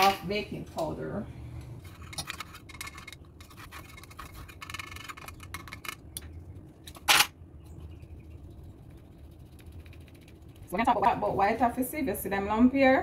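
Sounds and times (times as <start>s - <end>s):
low steady hum: 0.0s - 13.0s
scratching and scraping of can: 1.8s - 6.0s.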